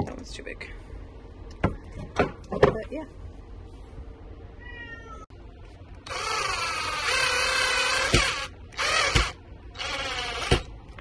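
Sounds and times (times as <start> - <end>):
cordless drill motor whining: 6.0 - 10.7.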